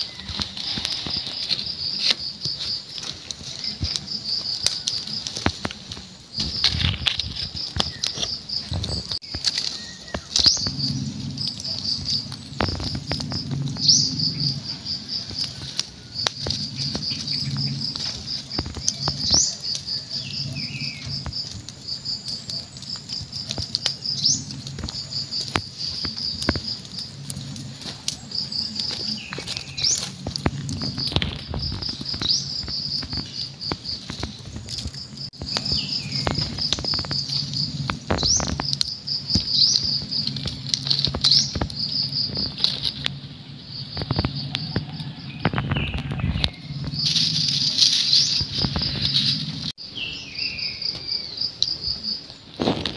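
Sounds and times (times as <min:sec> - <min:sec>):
kittens scuffling on dry leaves: 0:00.0 - 0:43.3, 0:44.0 - 0:52.9
insects trilling: 0:00.0 - 0:52.9
low hum: 0:08.9 - 0:21.4.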